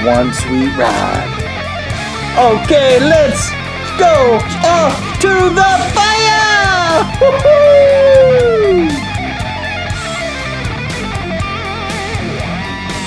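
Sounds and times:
electric guitar rock music: 0.0 - 13.0
steady drum beat: 0.7 - 9.4.

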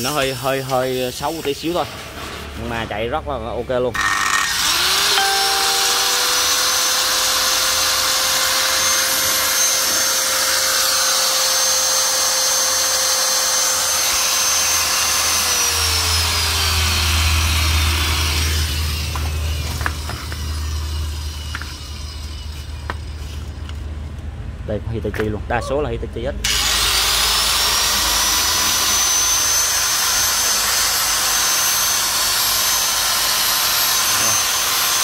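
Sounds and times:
angle grinder motor whine: 4.0 - 23.0, 26.5 - 35.0.

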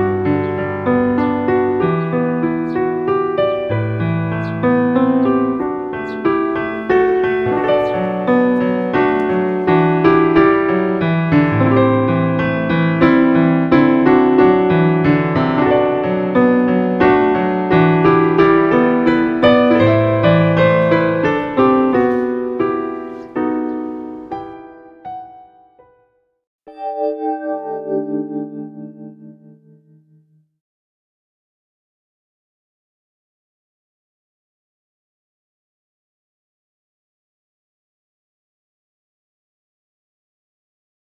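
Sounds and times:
piano music: 0.0 - 30.5.

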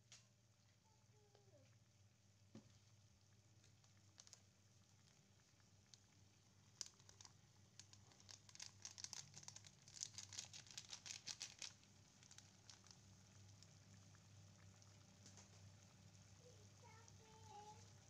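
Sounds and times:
paper sachet crinkling: 6.7 - 13.0.

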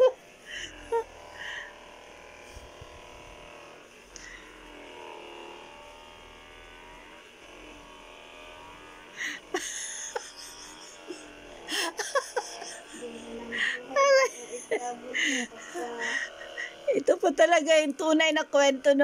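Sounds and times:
massage gun motor hum: 0.0 - 19.0.

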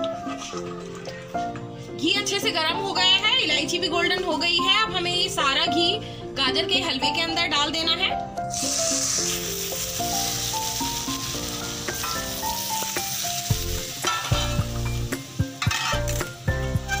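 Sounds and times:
hot ghee sizzling: 8.5 - 17.0
metal pan and spatula knocking: 14.0 - 14.8, 15.4 - 17.0.

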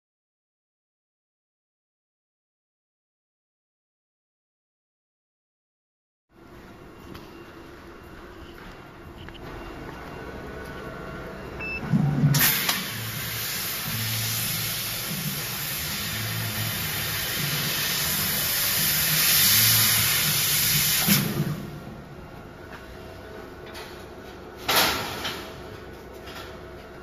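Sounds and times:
laser cutter hiss: 12.4 - 21.6.

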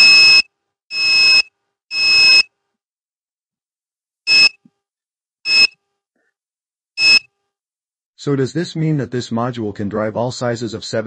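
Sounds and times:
electronic beeps: 0.0 - 2.4, 4.3 - 4.6, 5.5 - 5.8, 7.0 - 7.3.

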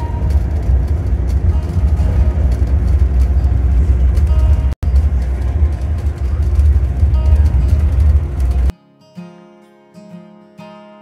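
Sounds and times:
car driving low rumble: 0.0 - 8.7.

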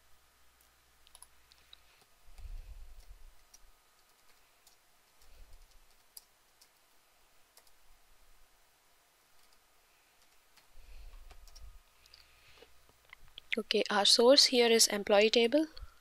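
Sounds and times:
computer mouse clicks: 0.6 - 6.8, 7.5 - 7.8, 9.4 - 9.6.

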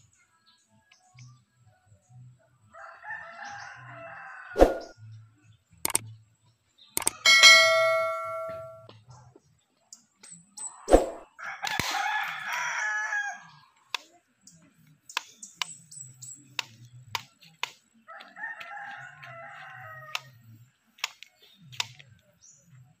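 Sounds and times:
rooster crowing: 2.7 - 4.9, 11.4 - 13.6, 18.1 - 20.4
sharp clicks: 5.8 - 6.0, 7.0 - 7.4.

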